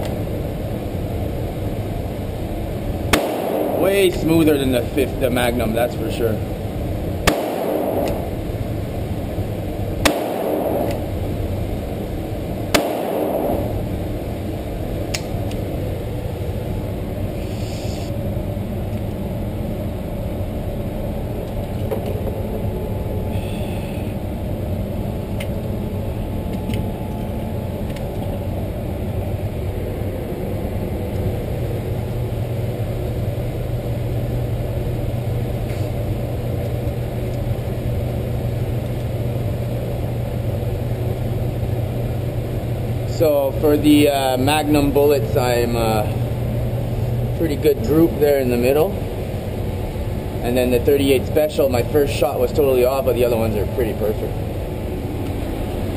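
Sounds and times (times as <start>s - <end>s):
steady low rumble: 0.0s - 55.9s
revolver shots: 3.1s - 4.6s, 7.2s - 8.9s, 10.0s - 11.6s, 12.7s - 14.4s.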